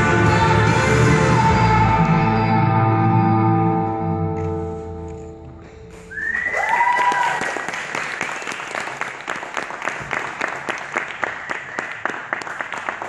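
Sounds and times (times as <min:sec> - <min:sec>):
high whoop: 0:06.1 - 0:07.6
audience applauding: 0:06.1 - 0:13.0.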